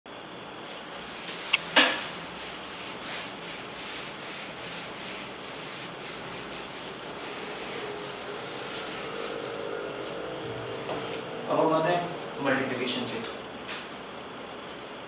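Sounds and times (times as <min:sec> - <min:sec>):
duster rubbing on whiteboard: 0:00.6 - 0:11.3.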